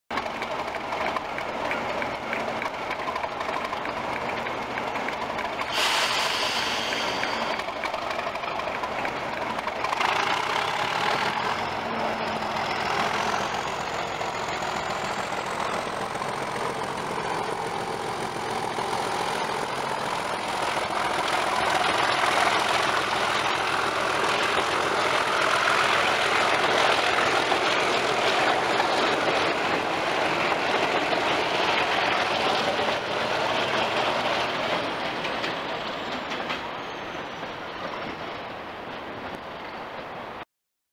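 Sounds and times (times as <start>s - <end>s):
coaches rolling on rails: 0.1s - 40.4s
diesel locomotive engine working hard: 0.1s - 40.4s
air hiss: 5.7s - 7.6s.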